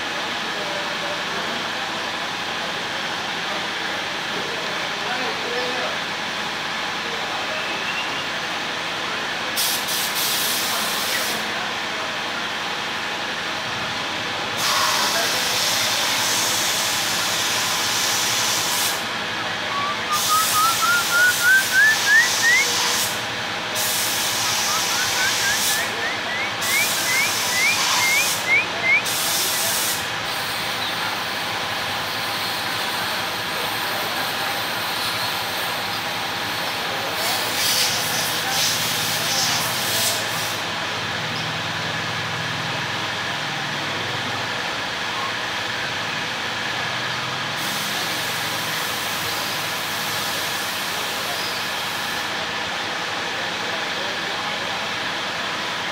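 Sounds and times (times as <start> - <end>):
loud hiss of spray: 9.6 - 11.6, 14.6 - 19.3, 20.0 - 26.0, 29.0 - 30.6, 47.6 - 52.3
bird whistling upslurred notes: 19.7 - 22.9, 24.3 - 29.2.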